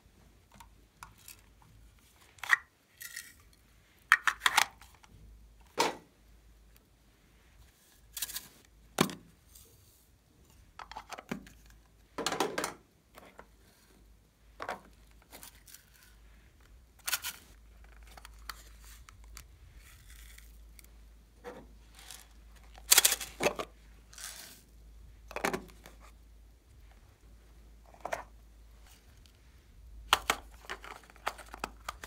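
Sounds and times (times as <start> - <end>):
plastic containers clicking and tapping: 4.1 - 5.0, 30.1 - 32.0
plastic clatter: 4.1 - 5.1, 10.8 - 13.5, 21.4 - 23.7, 25.3 - 26.0, 30.1 - 32.0.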